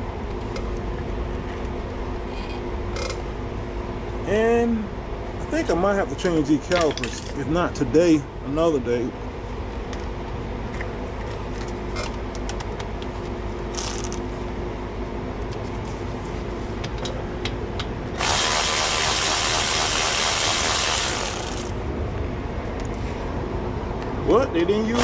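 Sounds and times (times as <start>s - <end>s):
impact wrench hammering: 18.2s - 21.7s.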